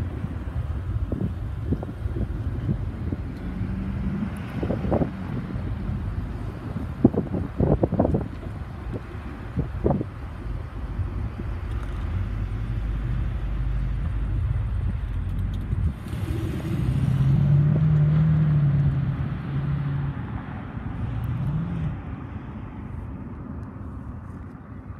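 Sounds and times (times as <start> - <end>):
freight train rumble: 0.0 - 18.2
car engine passing: 11.7 - 22.4.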